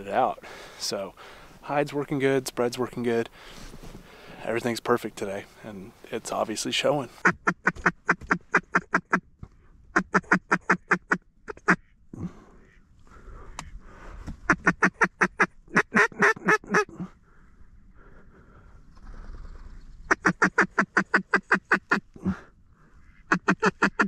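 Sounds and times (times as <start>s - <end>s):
duck call quacks: 7.2s - 9.2s, 10.0s - 12.0s, 14.5s - 16.9s, 20.1s - 22.1s, 23.0s - 24.0s.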